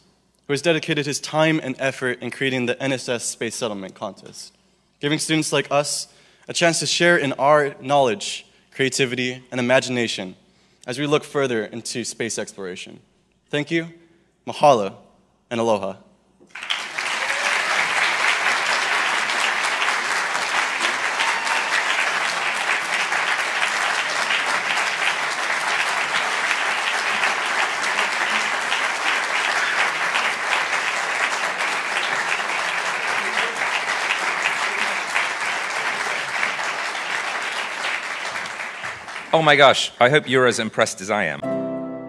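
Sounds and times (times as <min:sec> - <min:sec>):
large audience applauding: 0:16.5 - 0:39.8.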